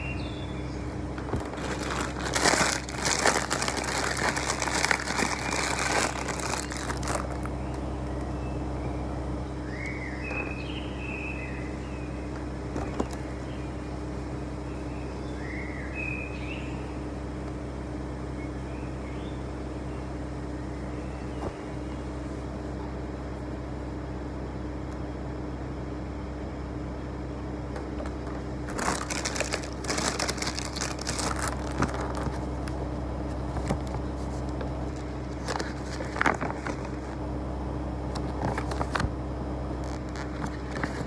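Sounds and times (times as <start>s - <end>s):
low room hum: 0.0s - 41.0s
hands crinkling paper: 1.3s - 7.8s, 28.6s - 32.6s, 33.5s - 37.2s, 39.8s - 41.0s.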